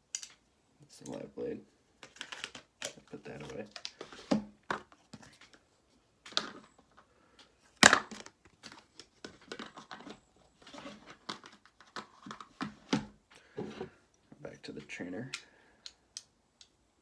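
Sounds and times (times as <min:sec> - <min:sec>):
rustling handling noise: 0:01.0 - 0:15.3.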